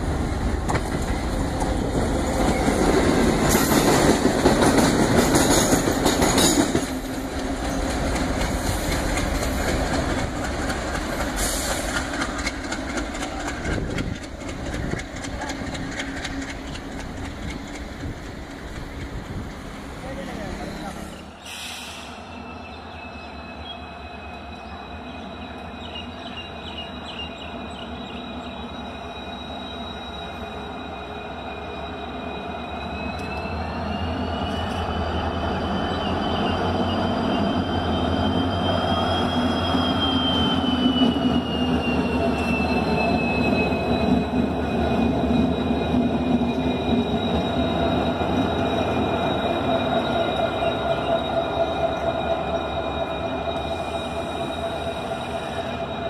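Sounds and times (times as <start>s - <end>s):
diesel locomotive engine: 0.0s - 56.0s
high wheel squeal: 20.0s - 56.0s.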